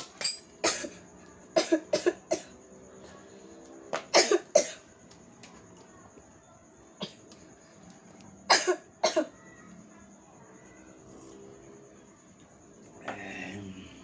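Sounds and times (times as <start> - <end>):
person coughing: 4.2 - 4.8, 8.5 - 9.3.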